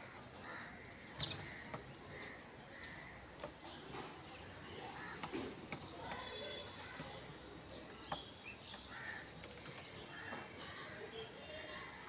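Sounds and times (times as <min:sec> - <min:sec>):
crows cawing: 0:00.0 - 0:03.2, 0:04.9 - 0:05.3, 0:08.9 - 0:09.4
sparrows chirping: 0:00.0 - 0:12.0.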